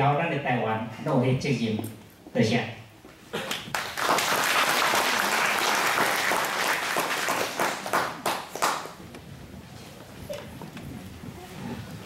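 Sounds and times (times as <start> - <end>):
audience applauding: 3.4 - 9.0.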